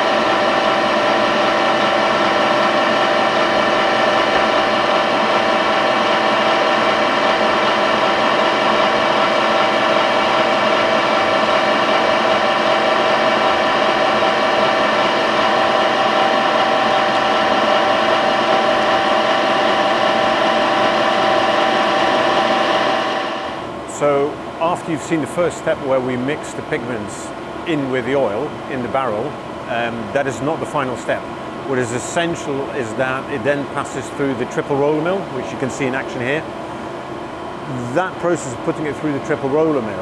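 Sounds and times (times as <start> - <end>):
electric mixer motor whine: 0.0 - 23.8.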